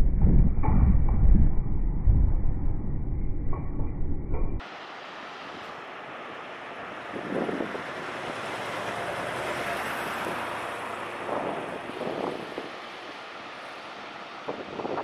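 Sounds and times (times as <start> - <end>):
wind rushing over microphone: 0.0 - 5.8, 6.7 - 15.0.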